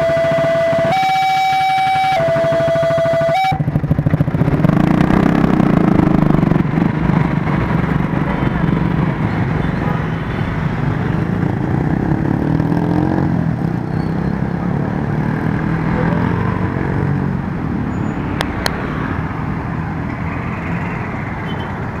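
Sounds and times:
engine revving: 0.0 - 9.2, 11.3 - 17.5.

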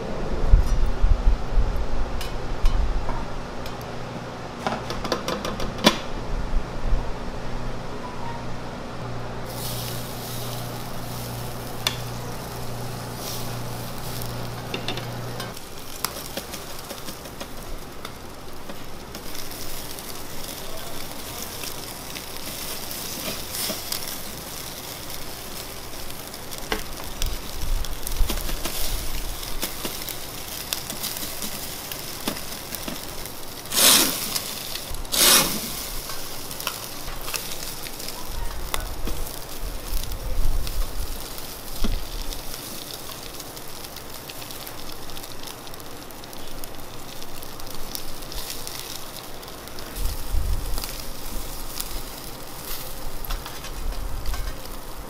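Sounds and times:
chicken sizzling on a grill: 0.6 - 55.0
loud hiss: 8.6 - 55.0.

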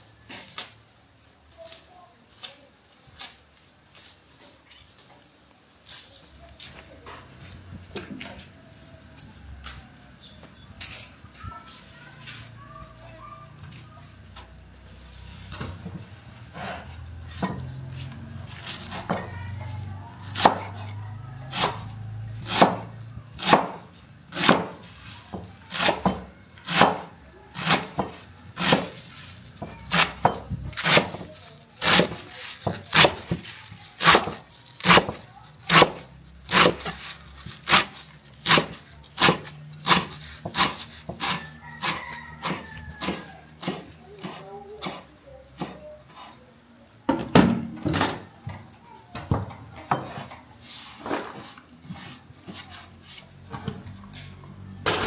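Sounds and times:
knife chopping on wooden board: 20.2 - 29.0, 29.9 - 31.2, 31.8 - 33.4, 34.0 - 45.0.

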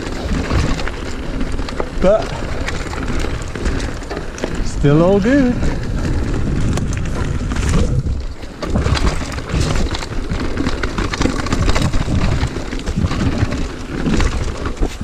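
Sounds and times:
bike rattling over stones: 0.0 - 15.0
bike tyre noise: 0.0 - 15.0
wind on microphone: 1.6 - 10.4.

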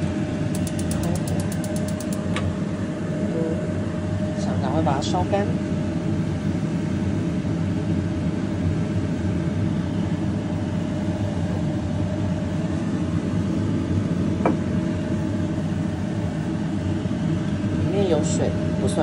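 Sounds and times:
faint hum: 0.0 - 19.0
gas burner rumbling: 0.0 - 19.0.

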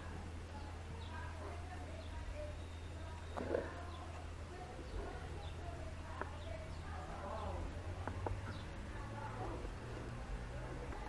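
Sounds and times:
low steady hum: 0.0 - 11.0
faint bird chirps: 0.5 - 4.2.

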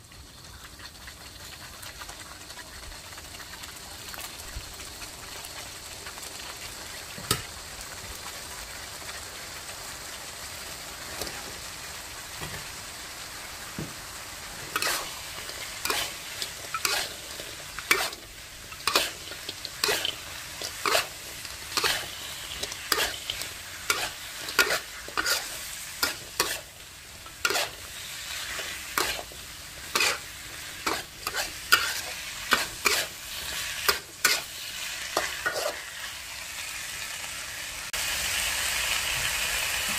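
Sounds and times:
sauce sizzling in a wok: 0.0 - 39.9
metal spatula scraping a wok: 14.5 - 36.1.

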